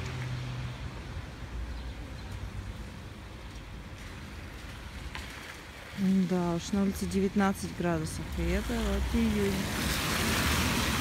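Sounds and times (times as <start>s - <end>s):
distant traffic rumble: 0.0s - 11.0s.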